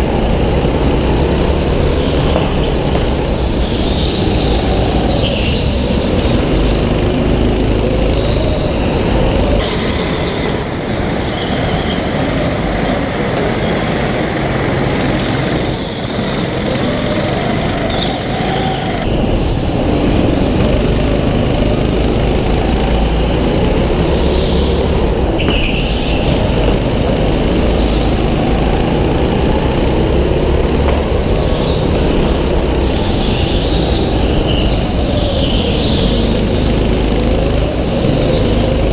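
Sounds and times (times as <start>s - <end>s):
kart engine revving: 0.0s - 38.9s
tyres squealing: 15.6s - 38.9s.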